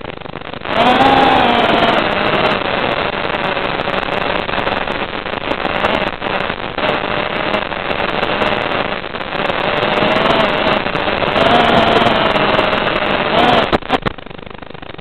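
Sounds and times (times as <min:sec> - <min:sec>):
drone motor whine: 0:00.0 - 0:14.1
rushing crackly wind noise: 0:00.0 - 0:15.0.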